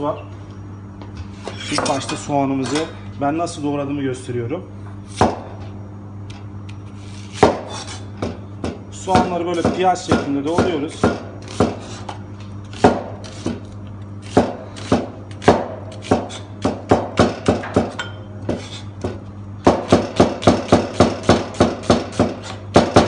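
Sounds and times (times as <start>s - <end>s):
knife chopping on cutting board: 5.1s - 5.5s, 7.3s - 13.6s, 14.2s - 23.0s.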